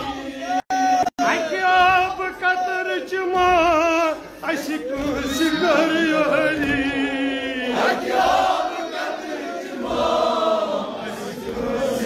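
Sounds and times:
lead reciter chanting: 0.0s - 12.0s
men chanting in unison: 4.6s - 12.0s.

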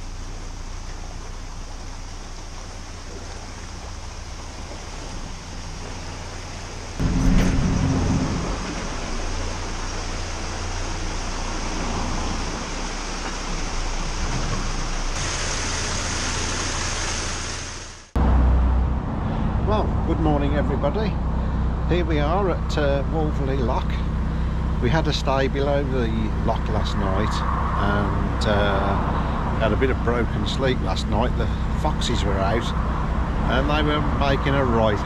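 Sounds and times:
water rushing through lock gate: 0.0s - 18.2s
low steady hum: 0.0s - 35.0s.

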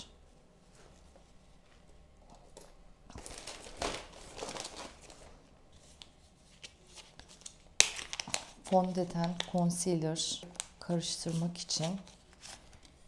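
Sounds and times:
plastic bags crinkling: 3.1s - 5.5s, 7.2s - 9.7s.

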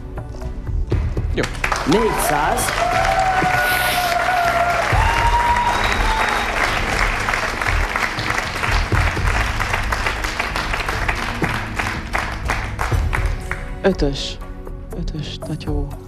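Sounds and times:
audience applauding: 1.4s - 13.7s.

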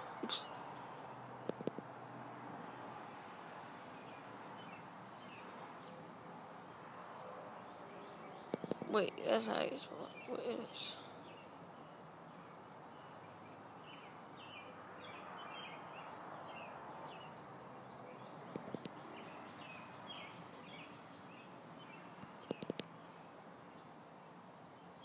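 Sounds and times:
faint background hiss: 0.0s - 25.0s
sharp clicks: 1.4s - 1.8s, 8.5s - 8.9s, 22.4s - 22.9s.

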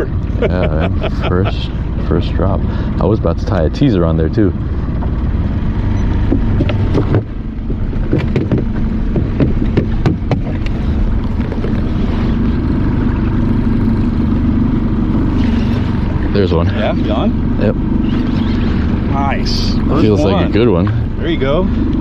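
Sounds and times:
boat engine idling: 0.0s - 22.0s
knocks and clicks: 8.0s - 11.8s.

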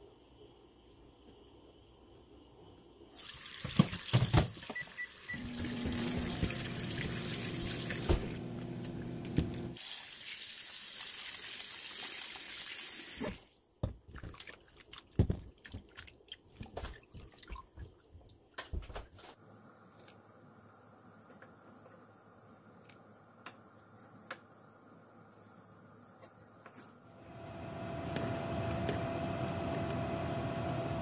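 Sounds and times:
water splashing and sloshing: 3.1s - 8.4s, 13.2s - 18.8s.

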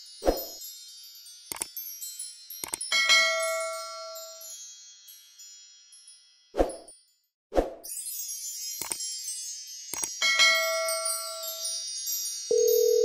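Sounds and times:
wind-chime shimmer: 0.0s - 13.0s
ringing chime tones: 7.9s - 13.0s.

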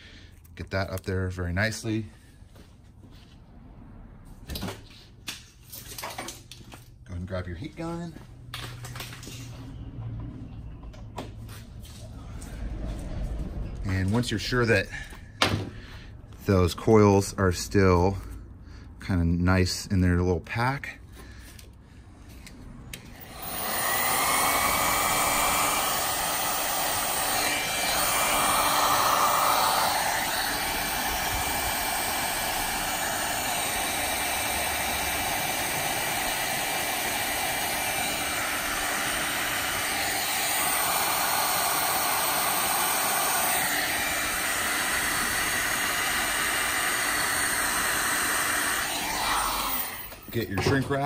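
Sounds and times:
heat gun fan whine: 22.9s - 51.0s.

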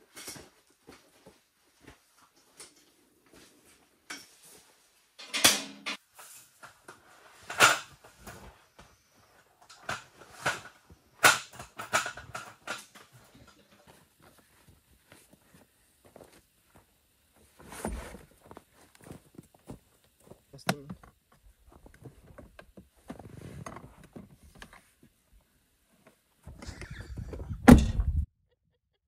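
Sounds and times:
handling clicks and rustling: 9.6s - 15.5s.

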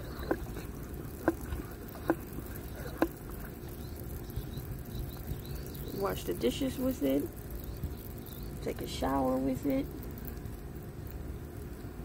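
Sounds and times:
pump sprayer handle squeaking: 0.0s - 7.2s
water spraying: 0.0s - 11.3s.

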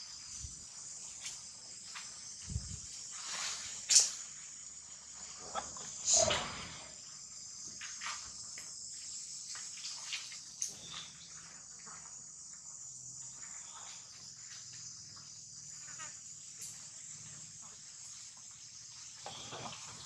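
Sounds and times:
high-pitched insect chorus: 0.0s - 20.0s.

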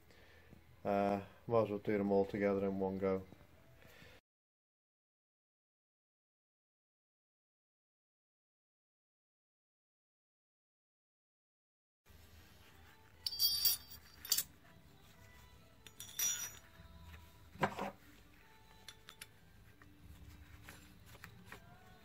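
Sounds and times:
metal tools clinking: 13.2s - 14.6s, 15.8s - 17.0s, 18.6s - 19.5s.

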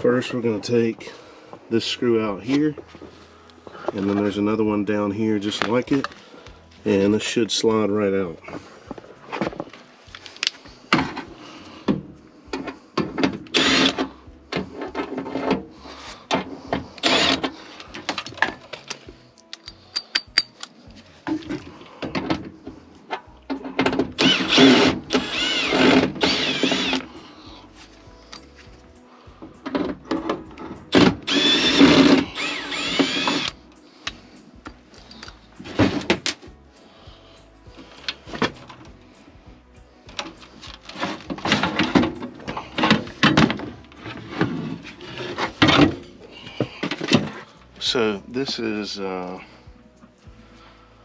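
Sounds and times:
drill motor whine: 13.5s - 14.1s, 17.0s - 17.5s, 24.2s - 27.1s, 30.9s - 33.6s.

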